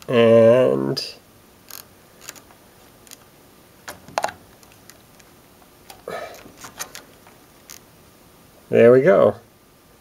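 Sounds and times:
test probes clicking and scraping: 1.7 - 3.3, 3.9 - 7.9.

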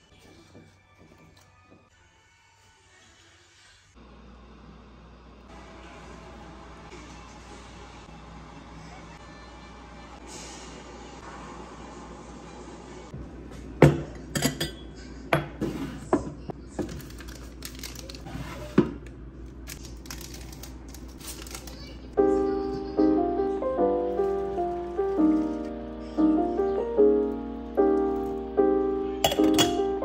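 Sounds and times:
slow keyboard melody: 22.2 - 30.0
glass teaware clinking: 29.2 - 29.9.

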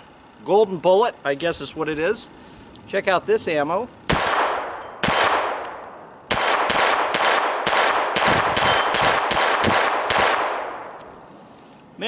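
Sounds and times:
steel plate ringing: 4.1 - 5.6, 6.3 - 7.9, 8.6 - 10.1
pistol shots: 4.1 - 11.1.

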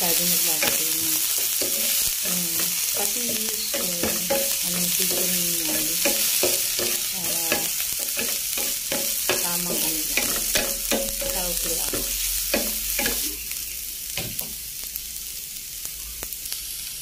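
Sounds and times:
onion sizzling in hot oil: 0.0 - 17.0
wooden spatula scraping a pan: 0.6 - 13.4.

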